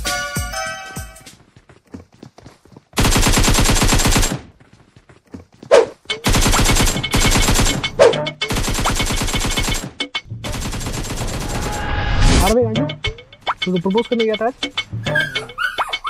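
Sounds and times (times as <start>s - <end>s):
automatic machine-gun fire: 3.0s - 4.4s, 6.2s - 7.9s, 10.5s - 11.8s.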